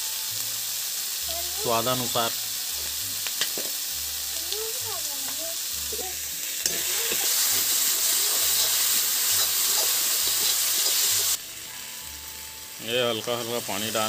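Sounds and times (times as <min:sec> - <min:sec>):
masala sizzling in hot oil: 0:00.0 - 0:14.0
metal ladle scraping pan: 0:06.6 - 0:11.4.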